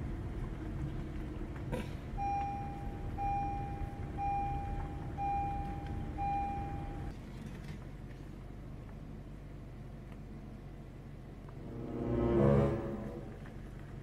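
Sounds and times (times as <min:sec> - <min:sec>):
car warning chime beeping: 0:02.2 - 0:07.1.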